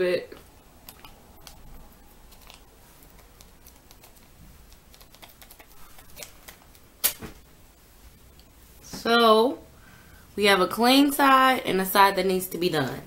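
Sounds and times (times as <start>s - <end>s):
wax strip crinkling under fingernails: 0.4s - 7.2s
wax strip ripped off: 4.8s - 7.4s.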